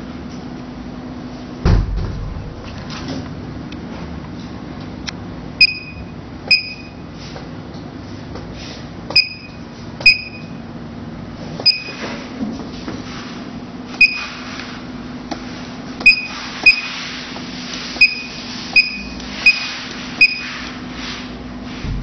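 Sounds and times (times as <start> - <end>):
steady low hum: 0.0 - 22.0
short electronic beeps: 5.6 - 7.0, 9.2 - 10.6, 11.6 - 12.0, 14.0 - 14.3, 16.0 - 16.9, 18.0 - 20.5.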